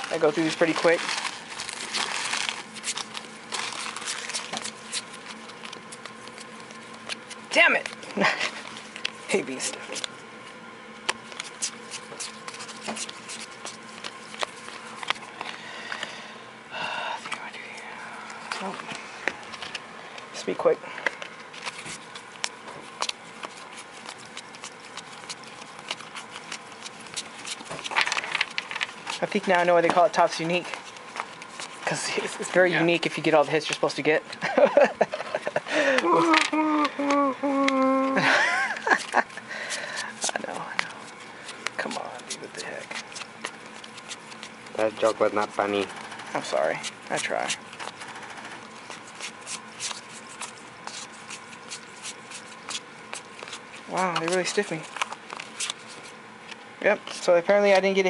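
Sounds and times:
cards flipped by hand: 1.8s - 16.0s, 21.0s - 33.9s, 38.8s - 57.2s.

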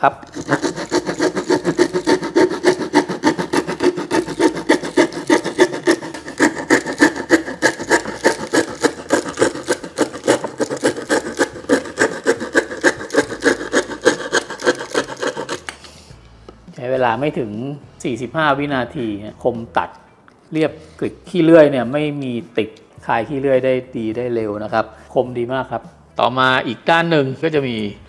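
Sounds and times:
hand saw cutting through wood: 0.1s - 15.8s.

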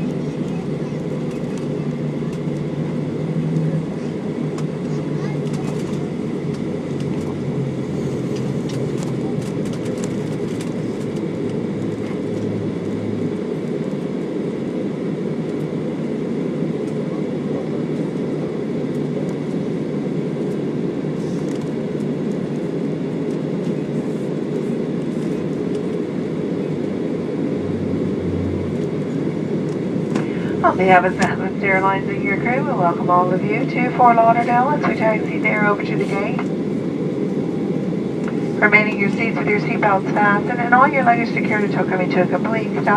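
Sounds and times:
jet engines idling: 0.0s - 42.9s
cabin air noise: 24.0s - 42.9s.

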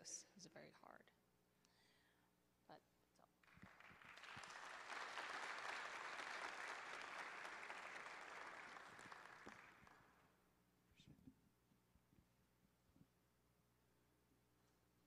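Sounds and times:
congregation applauding: 3.4s - 10.3s.

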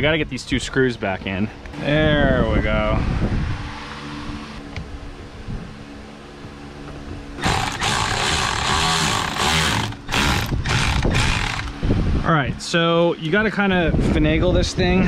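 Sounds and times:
power screwdriver driving screw: 7.4s - 11.8s.

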